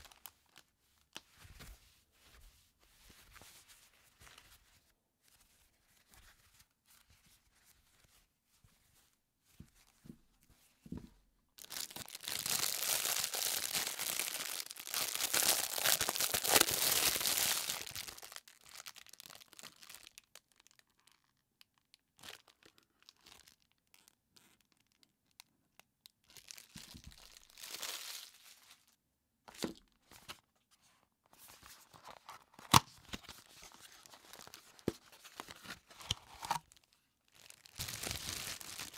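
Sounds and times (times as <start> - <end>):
plastic wrapping crinkling and tearing: 0.0 - 1.2, 11.6 - 25.4, 26.2 - 29.0, 31.9 - 38.9
packaging rustling: 11.6 - 20.0, 26.3 - 28.8, 31.5 - 38.9.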